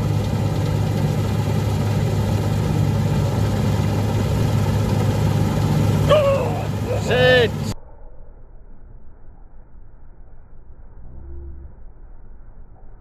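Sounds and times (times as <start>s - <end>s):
combine harvester engine drone: 0.0s - 7.8s
machinery humming: 0.0s - 7.8s.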